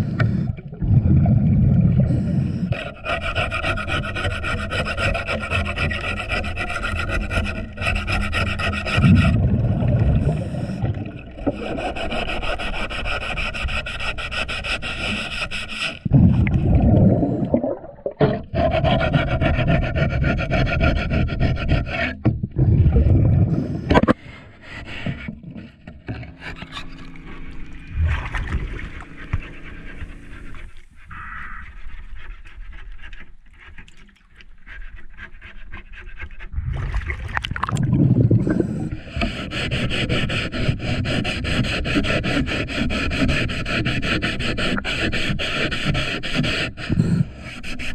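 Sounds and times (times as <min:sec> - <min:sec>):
scraper rasping underwater: 0:00.0 - 0:47.9
regulator exhaust bubbles: 0:25.4 - 0:30.9, 0:36.6 - 0:39.0.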